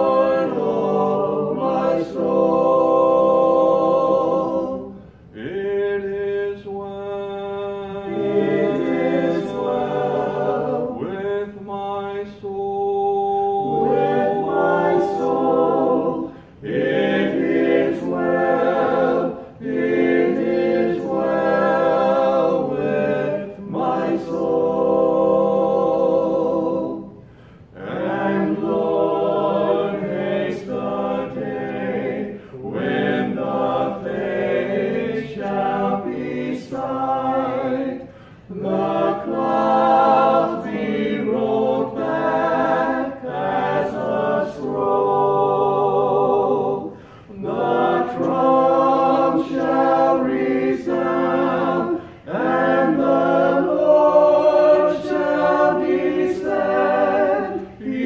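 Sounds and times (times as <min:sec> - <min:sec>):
group singing a hymn unaccompanied: 0:00.0 - 0:58.0.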